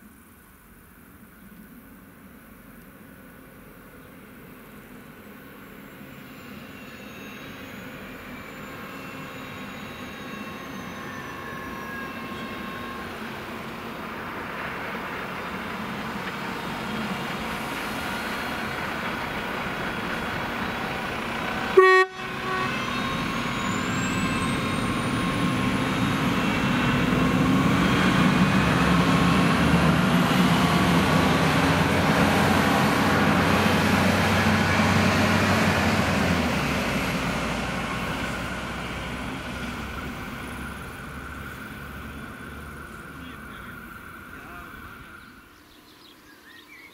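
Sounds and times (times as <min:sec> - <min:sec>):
railcar engine and wheels passing: 0:00.0 - 0:46.9
train horn toot: 0:08.9 - 0:13.3, 0:21.7 - 0:25.0.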